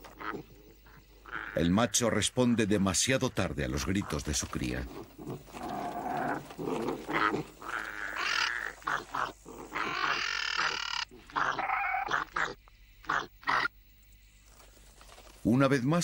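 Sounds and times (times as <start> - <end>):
harsh animal cries: 5.2 - 13.7.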